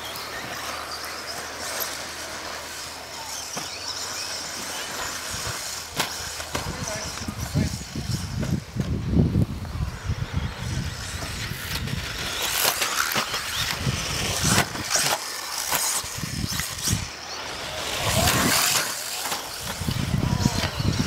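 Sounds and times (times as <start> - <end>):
rc car motor revving: 0.0 - 21.0.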